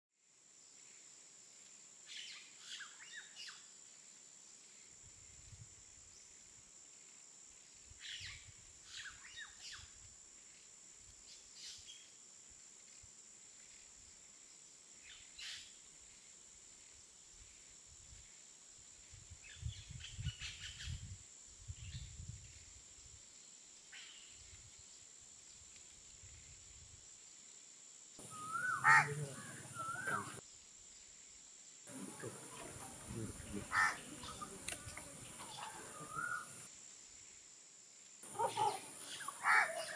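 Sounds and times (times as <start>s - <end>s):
birds chirping: 28.2s - 30.4s, 31.9s - 36.7s, 38.2s - 39.9s.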